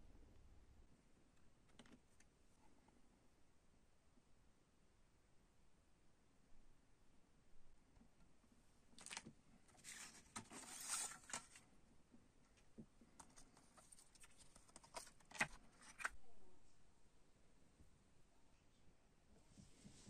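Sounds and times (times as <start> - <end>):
paper rustling: 9.0 - 11.6, 13.1 - 16.2.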